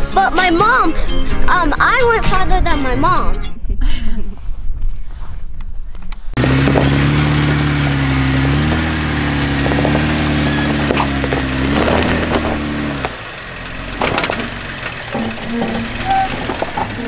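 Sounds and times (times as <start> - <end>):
car engine at low revs: 6.4 - 17.0
rocks knocking under tyres: 6.4 - 17.0.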